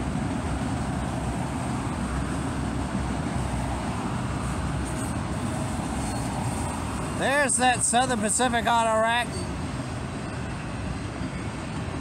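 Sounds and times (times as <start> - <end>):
freight train wheels on track: 0.0 - 12.0.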